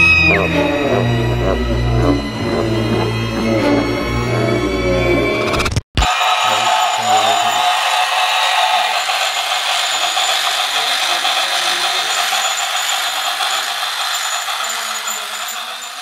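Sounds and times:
toy train motor whirring: 6.0 - 16.0
toy train wheels rattling: 6.1 - 16.0.

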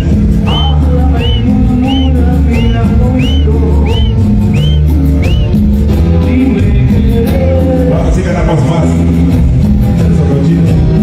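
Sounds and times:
high whistle-like chirp: 0.0 - 5.6
loud dance music with heavy bass: 0.0 - 11.0.

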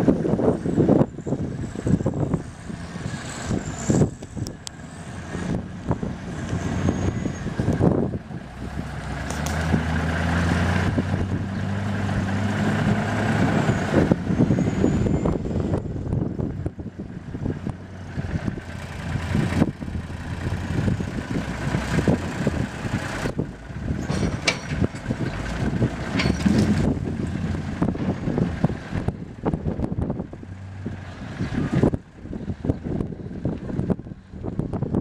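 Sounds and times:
diesel truck driving past: 0.0 - 35.0
gusty rumbling noise: 0.0 - 35.0.

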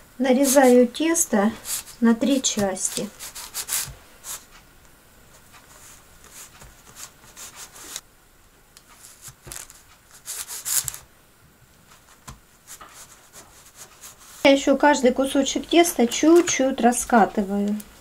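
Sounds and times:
blade scraping on paper: 0.4 - 0.9, 1.6 - 4.5, 5.7 - 8.0, 9.0 - 11.0
knife cutting pastry: 1.6 - 4.5.

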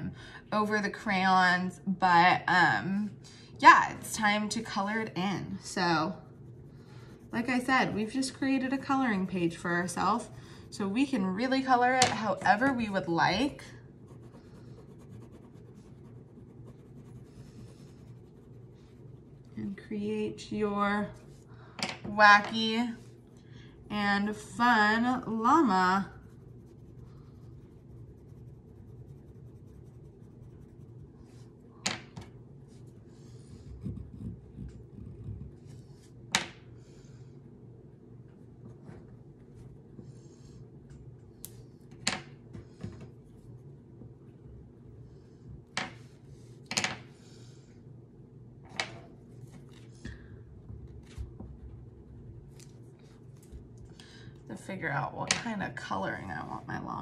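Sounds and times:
low room hum: 0.0 - 57.0
crayon rubbing on paper: 5.6 - 11.2, 14.0 - 19.8, 23.9 - 31.6.

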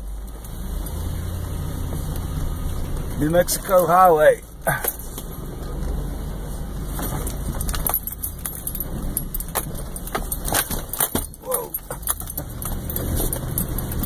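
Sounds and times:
engine and road rumble: 0.0 - 14.0
loose objects rattling in cab: 6.7 - 14.0.

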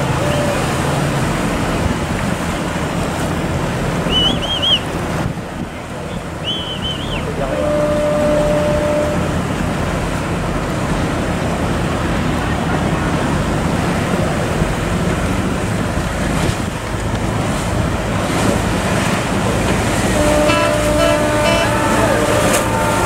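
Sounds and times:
boat engines droning: 0.0 - 23.0
rushing churning water: 0.0 - 23.0.

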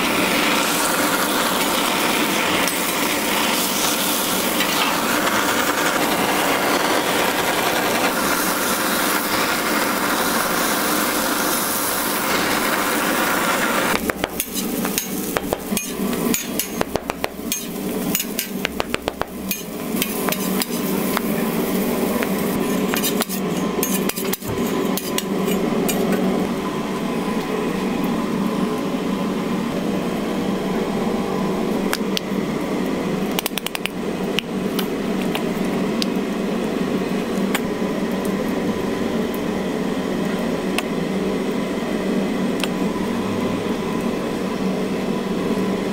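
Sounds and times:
food sizzling on griddle: 0.0 - 25.2
blowtorch flame hissing: 0.0 - 26.0
metal utensils scraping griddle: 14.3 - 16.8, 17.5 - 18.7, 19.4 - 26.0.

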